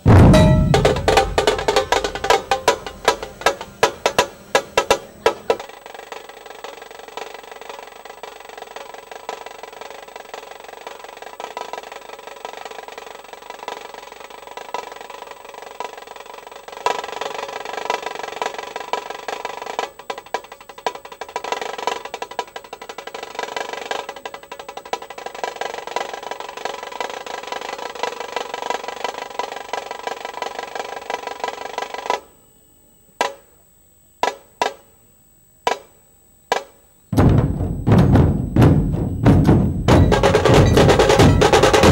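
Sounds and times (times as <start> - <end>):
deep low drum beats: 0.0 - 4.2, 37.2 - 41.9
sharp drum strokes: 0.0 - 5.1, 37.2 - 41.9
kettle drum rolls with sticks: 0.0 - 5.6, 37.2 - 41.9.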